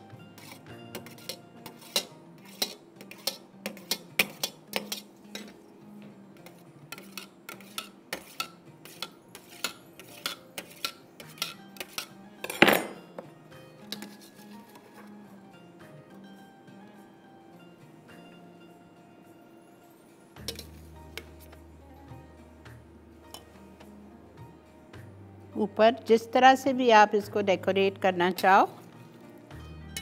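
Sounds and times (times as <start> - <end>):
knife scraping steel bowl: 0.4 - 5.6, 6.4 - 12.6, 13.8 - 14.9, 20.4 - 21.5.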